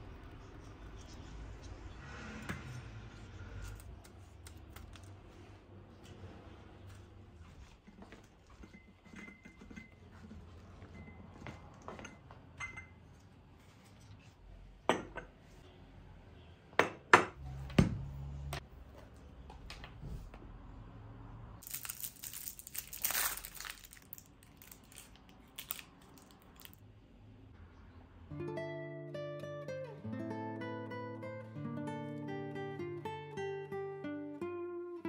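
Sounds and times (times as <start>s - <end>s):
cup and saucer clinking: 8.5s - 10.1s, 11.8s - 13.0s, 14.9s - 15.3s.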